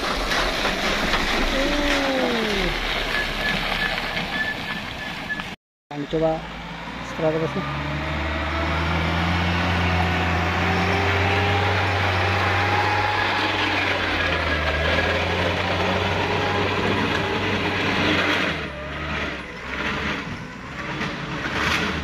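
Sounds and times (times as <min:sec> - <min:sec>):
diesel engine revving under load: 0:06.0 - 0:22.0.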